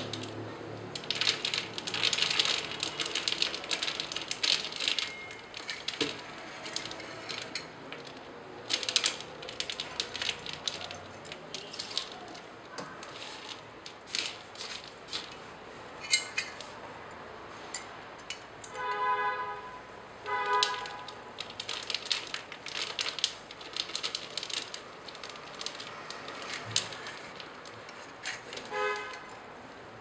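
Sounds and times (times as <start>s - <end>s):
metal clicks and rattles: 0.0s - 15.4s, 17.8s - 19.0s, 20.5s - 29.4s
horn-like honks: 18.8s - 21.0s, 28.7s - 29.2s.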